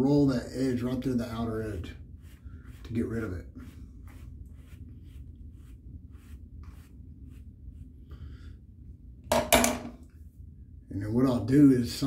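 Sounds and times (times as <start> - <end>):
brush swishing through beard: 1.2 - 8.0.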